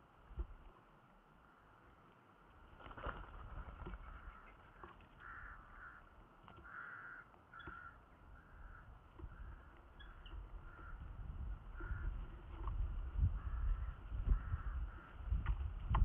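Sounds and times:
falcon chicks calling: 3.9 - 12.3.

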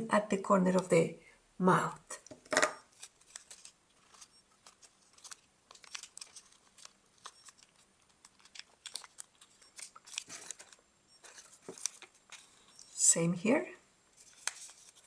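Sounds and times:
paper crinkling: 2.9 - 13.0, 14.2 - 15.0.

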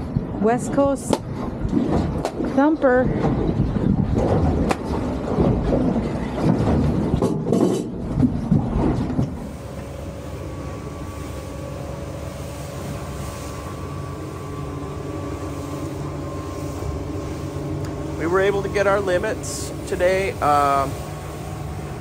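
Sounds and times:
outboard motor droning: 0.0 - 22.0
wind: 0.0 - 22.0
water rushing: 8.8 - 22.0.

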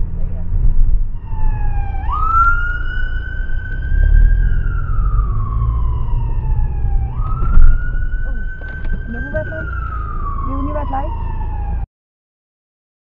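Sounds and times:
car engine rumble and road noise: 0.0 - 11.9
ambulance siren wailing: 1.1 - 11.9.

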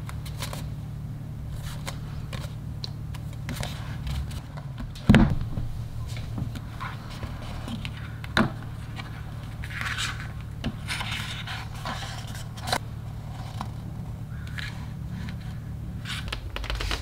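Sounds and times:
paper pages rustling and scraping: 0.0 - 0.7, 1.5 - 5.0, 6.0 - 17.0
steady low hum: 0.0 - 17.0.

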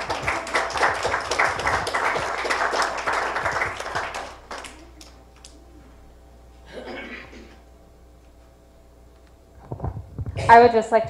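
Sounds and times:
crowd applauding: 0.0 - 5.6.

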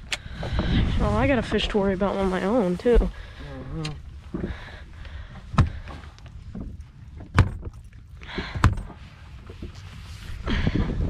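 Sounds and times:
wind rumble on microphone: 0.0 - 3.1, 5.5 - 11.0
knocks on boat deck: 5.5 - 5.9.

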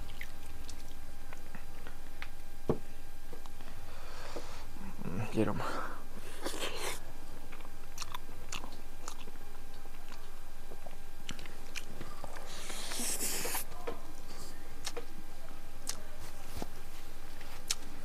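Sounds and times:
person chewing food: 6.2 - 13.7, 14.8 - 15.1, 17.4 - 17.9.

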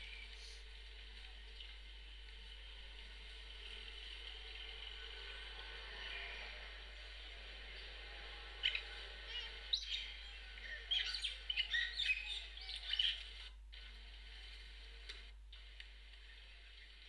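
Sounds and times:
faint steady hiss: 0.0 - 11.5
ducklings peeping: 8.6 - 13.4.

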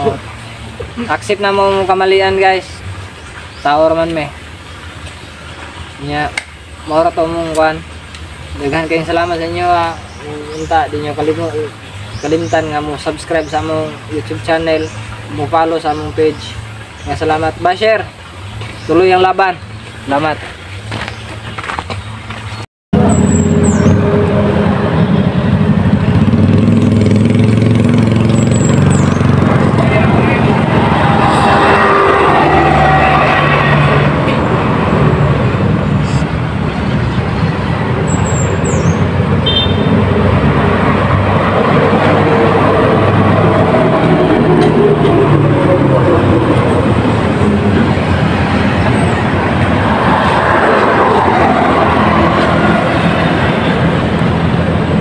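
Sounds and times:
steady rushing road noise: 0.0 - 55.0
low engine hum: 19.6 - 55.0.

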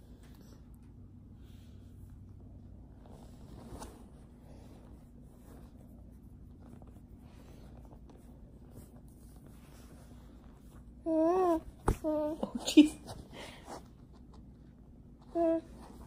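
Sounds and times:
faint rustling and rubbing: 0.0 - 16.0
soft scratchy strokes: 1.4 - 11.0.

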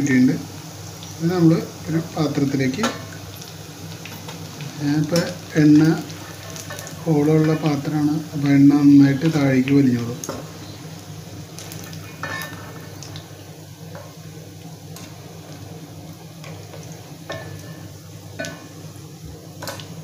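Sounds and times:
chicken frying in hot oil: 0.0 - 20.0
metal ladle scraping pan: 12.2 - 12.9.

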